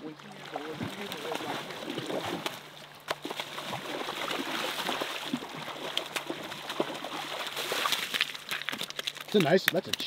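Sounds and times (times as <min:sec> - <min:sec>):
fish thrashing and splashing: 0:00.3 - 0:10.0.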